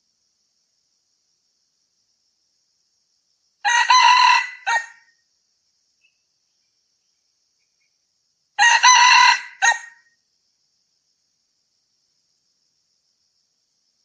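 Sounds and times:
rooster crowing: 3.6 - 5.1, 8.6 - 10.1.

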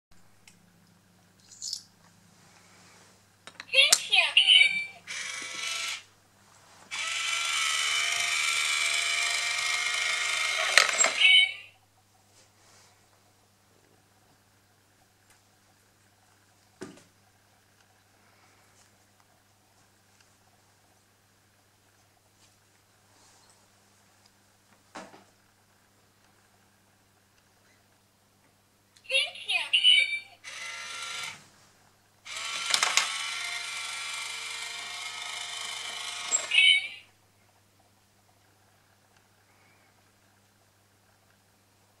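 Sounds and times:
small motor whirring: 5.1 - 6.1, 6.9 - 11.3, 30.4 - 31.4, 32.3 - 36.7.

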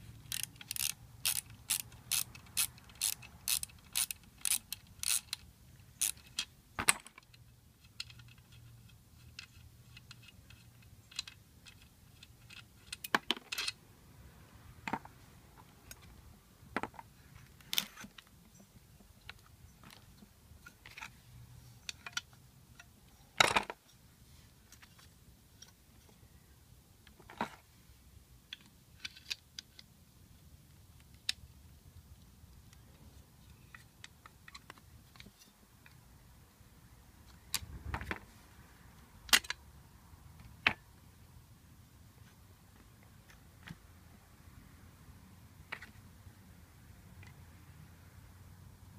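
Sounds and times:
screwdriver against metal cover: 0.3 - 6.5
metallic clicks of hand tools: 0.3 - 13.8.

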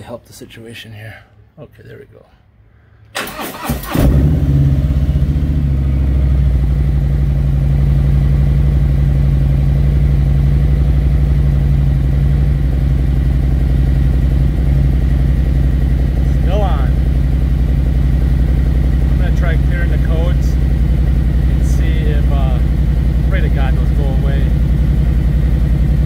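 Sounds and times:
motorcycle starter cranking: 3.1 - 4.4
motorcycle engine idling: 4.7 - 26.0.

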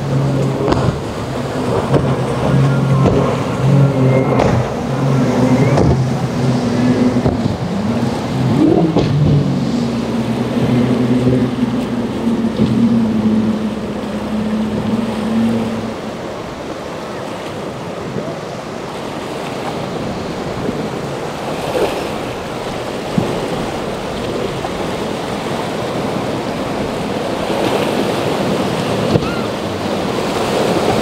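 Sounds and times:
wind noise: 0.0 - 16.6
motorboat engines: 0.0 - 31.0
water: 0.0 - 31.0.

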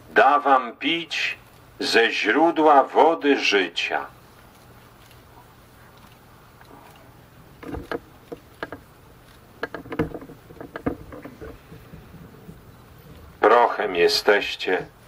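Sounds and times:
knocks and thuds: 7.6 - 8.8, 9.6 - 12.0.

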